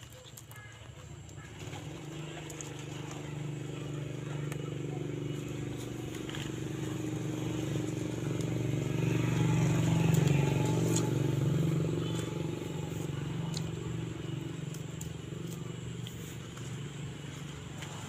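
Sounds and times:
vehicle engine running: 0.2 - 18.0
leaves snapping and rustling: 4.4 - 18.0.

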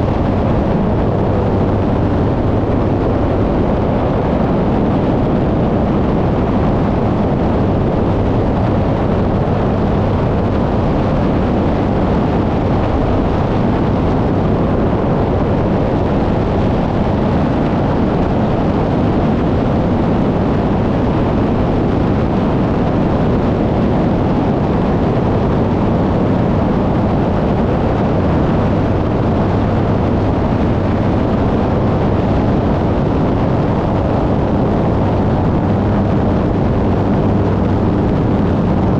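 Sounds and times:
propeller aircraft engine drone: 0.0 - 38.9
wind rushing over microphone: 0.0 - 38.9.

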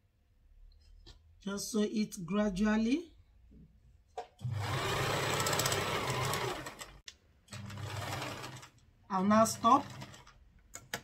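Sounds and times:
sewing machine running: 4.4 - 10.4.

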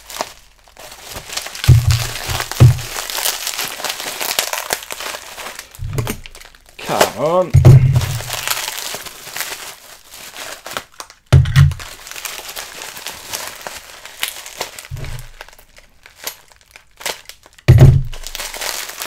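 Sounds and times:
packing material crinkling: 0.0 - 19.0
dull thumps: 1.5 - 3.3, 5.8 - 6.3, 7.0 - 8.5, 11.3 - 11.9, 14.9 - 15.4, 17.7 - 18.2.

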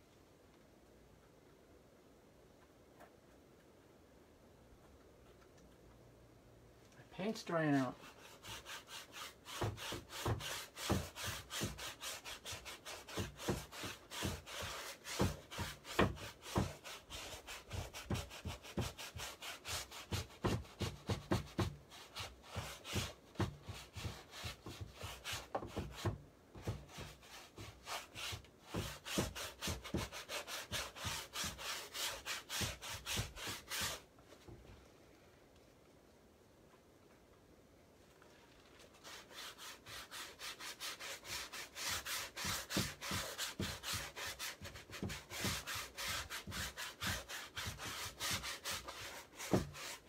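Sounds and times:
paint scrubbed onto canvas: 7.3 - 34.5, 38.4 - 50.0.

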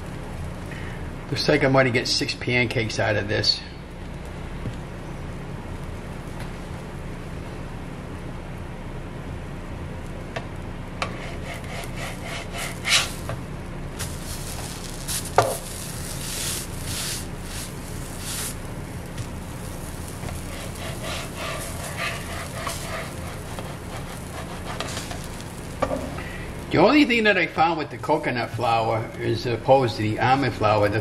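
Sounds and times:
spatula clicking on griddle: 11.0 - 13.4, 19.2 - 26.0
spatula scraping a griddle: 11.0 - 13.4, 14.0 - 26.2
pancakes sizzling: 11.0 - 27.4.

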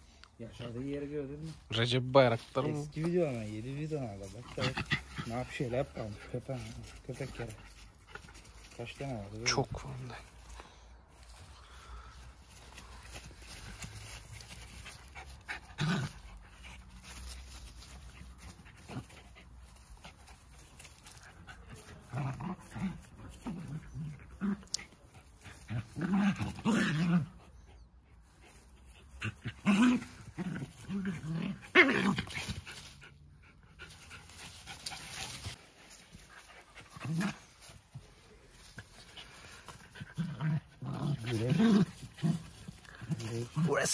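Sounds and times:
dogs panting: 9.8 - 22.1, 32.4 - 43.9
dogs growling: 21.8 - 27.9, 29.2 - 32.6, 38.8 - 43.9.

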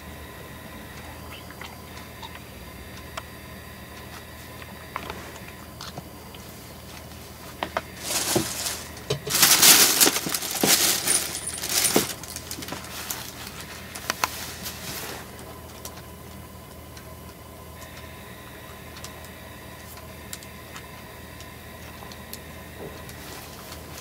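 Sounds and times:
paper sheet rustling: 7.4 - 15.4
plastic bag crinkling: 7.7 - 15.1.

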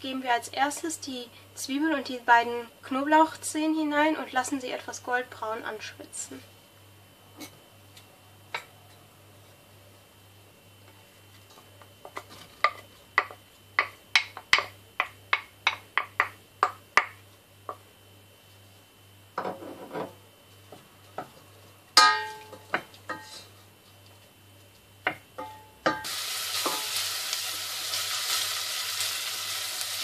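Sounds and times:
wooden spoon tapping bowl: 12.1 - 17.8.

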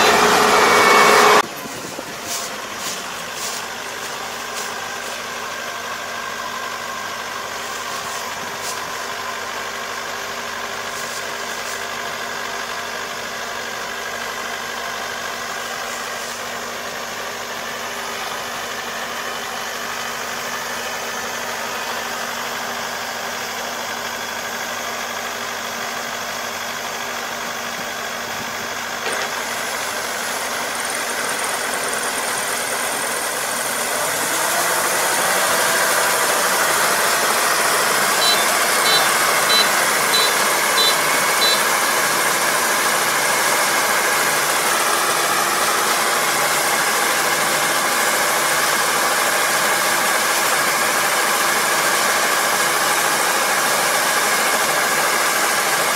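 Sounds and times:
combine harvester engine running: 0.0 - 55.9
short high beeps: 38.2 - 41.7.

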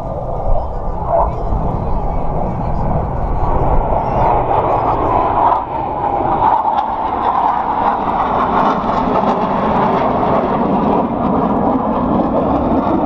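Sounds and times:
jet engines roaring: 0.0 - 13.0.

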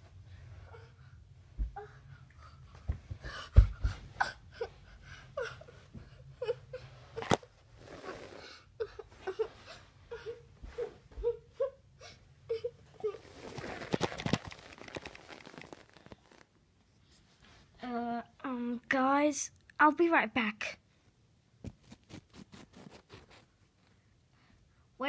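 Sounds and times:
person crying and whimpering: 4.2 - 7.4, 8.5 - 14.0.

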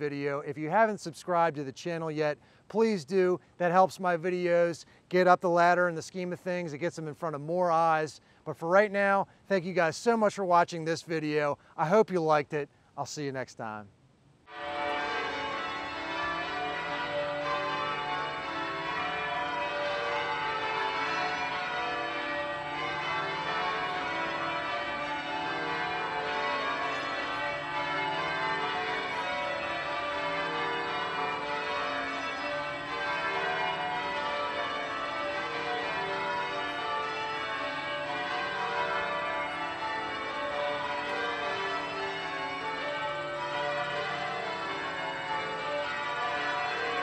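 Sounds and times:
church bells ringing: 14.5 - 47.0.

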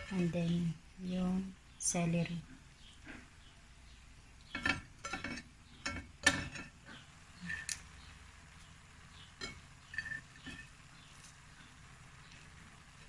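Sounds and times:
cookware knocking and clinking: 4.6 - 6.7.

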